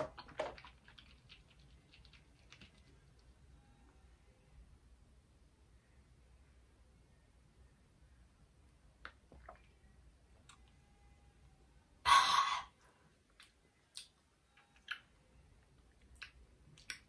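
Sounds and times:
woman sighing: 12.1 - 12.7.

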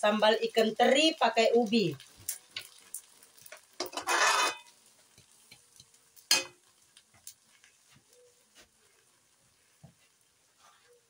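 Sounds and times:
metal spatula scraping a wok: 3.8 - 4.8.

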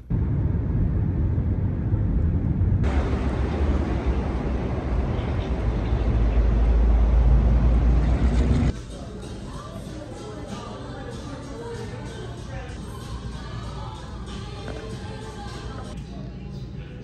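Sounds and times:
car road noise: 0.0 - 8.7
low outdoor rumble: 0.0 - 17.0
shop interior ambience: 2.8 - 17.0.

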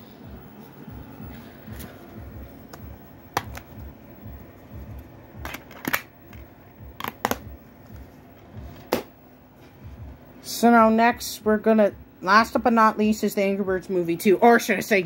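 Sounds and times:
plastic case clicks and snaps: 5.4 - 6.4, 7.0 - 7.4.

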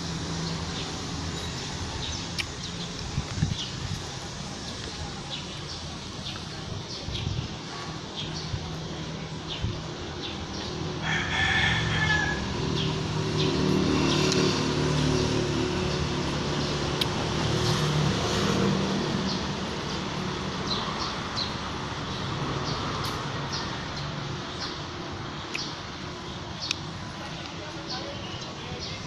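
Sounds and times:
vehicle engine hum: 0.0 - 29.0
rooster crowing: 11.0 - 12.8.

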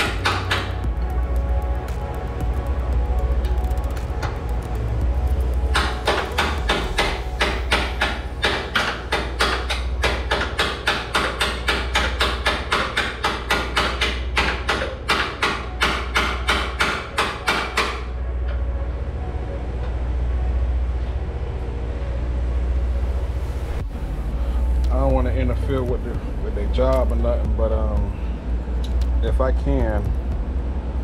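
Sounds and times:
hammer striking steel: 0.0 - 0.8, 5.6 - 18.1
steady low hum: 0.0 - 12.2, 18.1 - 31.0.

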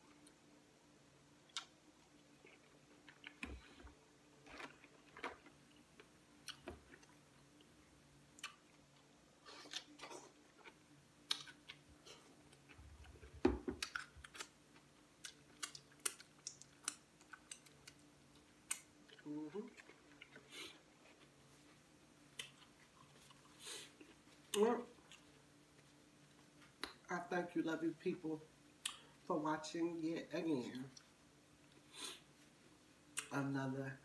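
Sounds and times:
chewing: 1.5 - 7.7, 8.3 - 21.4, 22.4 - 25.9.

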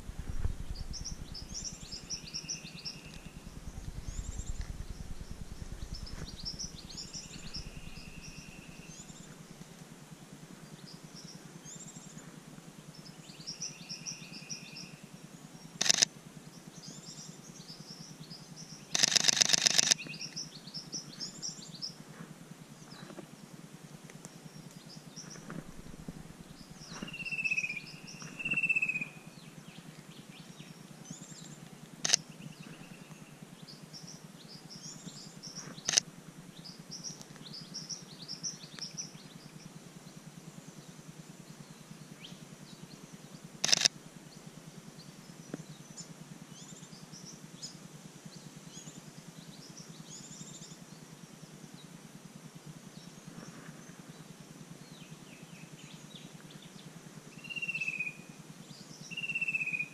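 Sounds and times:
small birds chirping: 0.0 - 9.8, 10.6 - 23.3, 24.1 - 52.0, 52.9 - 59.9
camera shutter clicks: 15.8 - 16.1, 18.9 - 20.2, 43.6 - 44.0
bird whistled notes: 27.1 - 29.2.

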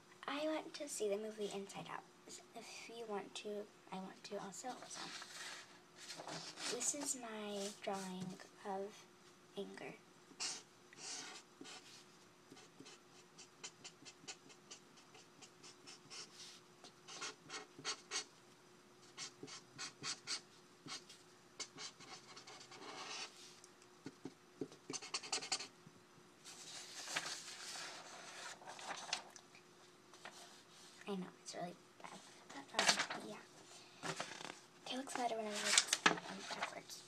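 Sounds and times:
marker scratching on paper: 4.7 - 8.4, 10.3 - 18.3, 19.1 - 23.4, 24.0 - 25.7
paper rustling: 4.8 - 8.3, 26.5 - 29.4, 32.5 - 33.3, 34.0 - 36.8.

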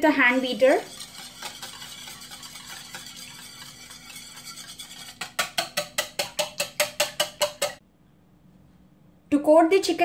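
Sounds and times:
whisk swishing in bowl: 0.0 - 7.8
whisk clinking against bowl: 0.3 - 7.8.

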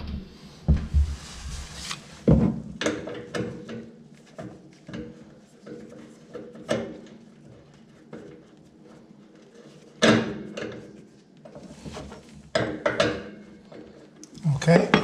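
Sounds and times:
heavy thumps: 0.0 - 1.6.

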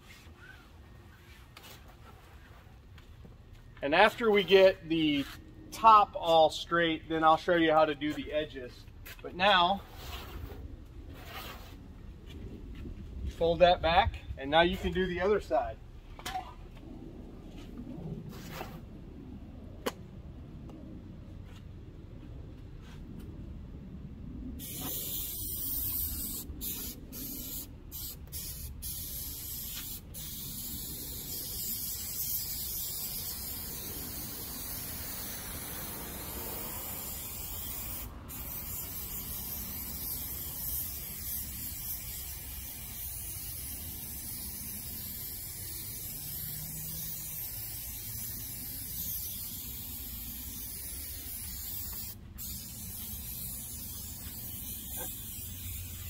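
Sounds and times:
aerosol spray hissing: 24.6 - 56.0.

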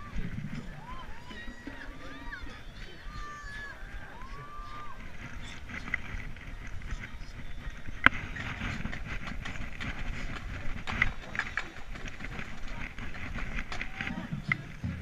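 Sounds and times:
background hubbub: 0.0 - 15.0
camera handling rumble and rubbing: 5.0 - 13.9.

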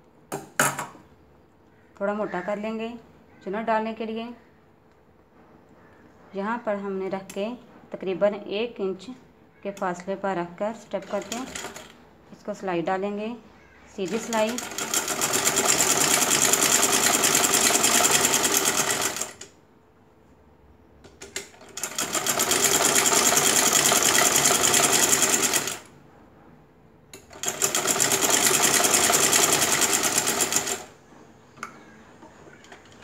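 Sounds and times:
sewing machine stitching: 11.0 - 11.9, 14.0 - 19.4, 21.3 - 25.9, 27.2 - 31.0.

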